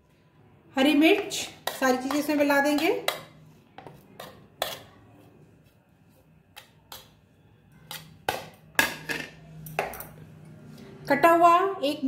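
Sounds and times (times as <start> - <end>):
spoon tapping plastic bowls: 1.1 - 5.0, 6.5 - 10.2.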